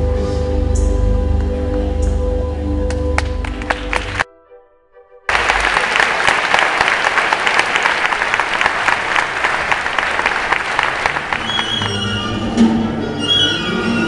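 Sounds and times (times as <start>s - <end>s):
music: 0.0s - 6.6s, 10.4s - 14.0s
audience applause: 3.2s - 4.2s, 5.3s - 12.3s.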